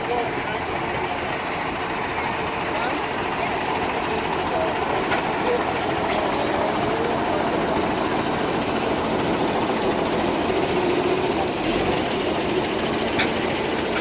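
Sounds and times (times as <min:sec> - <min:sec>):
tractor engine running: 0:00.0 - 0:14.0.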